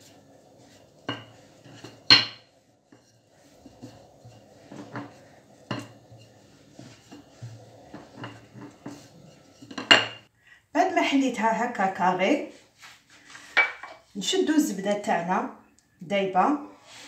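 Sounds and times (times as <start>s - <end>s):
rolling pin rolling dough: 0.0s - 10.3s
rolling pin knocking on stone: 1.1s - 2.5s.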